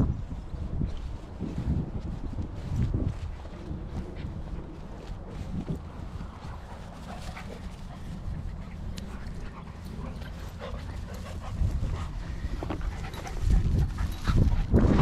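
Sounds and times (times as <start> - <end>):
low wind rumble on microphone: 0.0 - 15.0
dogs play-fighting: 3.9 - 15.0.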